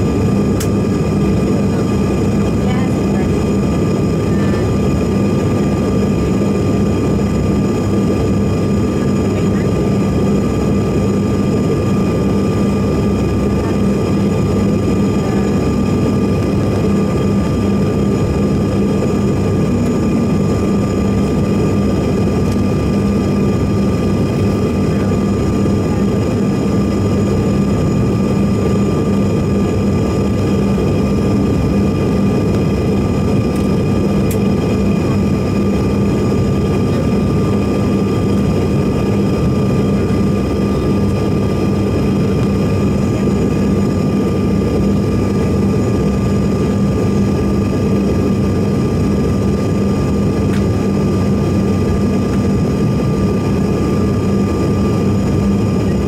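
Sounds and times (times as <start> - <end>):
jet engine drone: 0.0 - 56.0
low hum: 12.2 - 47.1.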